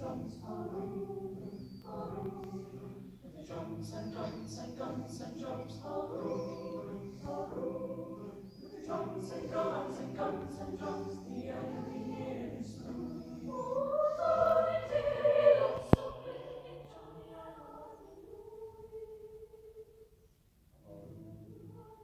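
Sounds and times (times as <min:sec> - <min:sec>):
mixed choir singing: 0:00.0 - 0:20.0, 0:20.8 - 0:22.0.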